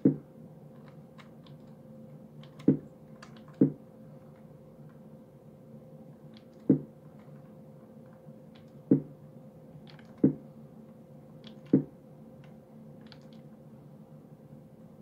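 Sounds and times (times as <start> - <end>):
faint steady hum: 0.0 - 15.0
stenography keyboard clacking: 2.4 - 3.8, 9.8 - 10.4, 12.4 - 13.5.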